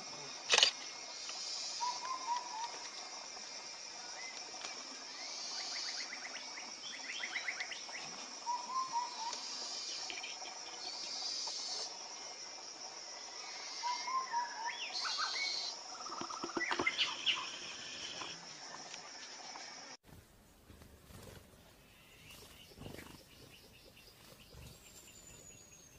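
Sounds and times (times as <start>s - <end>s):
birds chirping and trilling: 13.4s - 18.4s, 21.1s - 25.9s.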